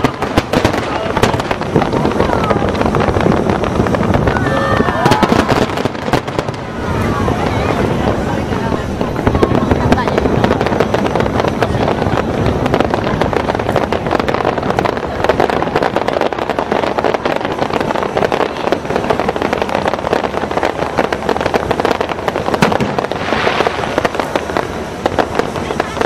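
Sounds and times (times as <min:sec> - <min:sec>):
fireworks bangs and crackling: 0:00.0 - 0:26.0
hissing crackle burst: 0:00.0 - 0:26.0.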